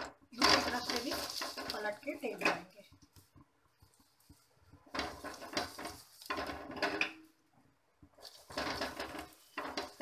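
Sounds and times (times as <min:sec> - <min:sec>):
metal spatula scraping a pan: 0:00.4 - 0:02.7, 0:04.8 - 0:07.4, 0:08.2 - 0:10.0.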